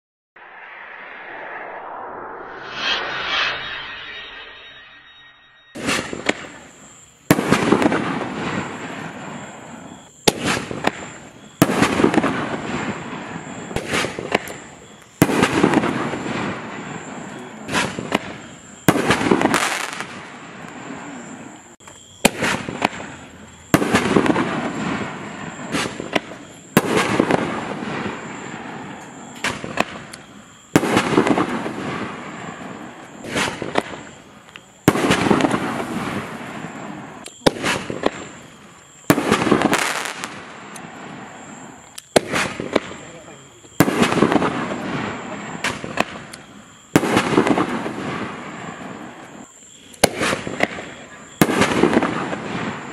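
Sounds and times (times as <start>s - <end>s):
firework crackle: 0.4s - 52.9s
firework launch bangs: 5.5s - 9.4s, 10.2s - 21.0s, 22.2s - 30.1s, 30.7s - 34.1s, 34.9s - 43.0s, 43.7s - 46.3s, 47.0s - 48.9s, 50.0s - 52.9s.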